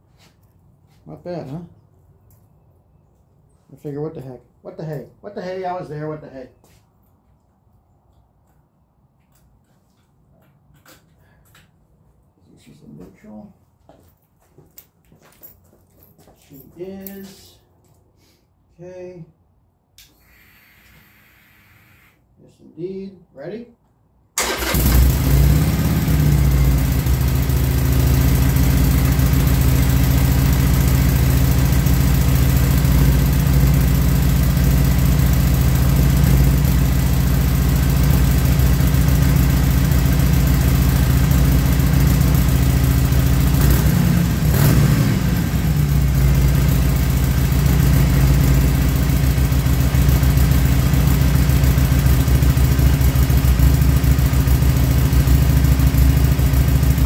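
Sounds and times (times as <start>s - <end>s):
motorcycle engine idling: 24.5s - 57.0s.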